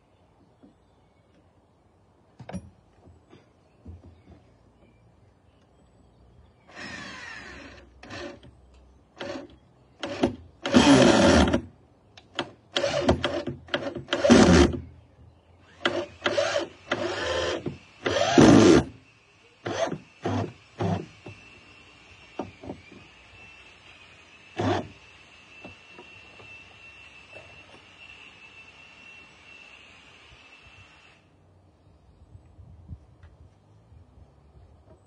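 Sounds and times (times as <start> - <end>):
electric drill driving screws into wood: 6.7 - 8.5, 9.2 - 11.7, 12.3 - 14.8, 15.7 - 19.0, 19.6 - 26.7.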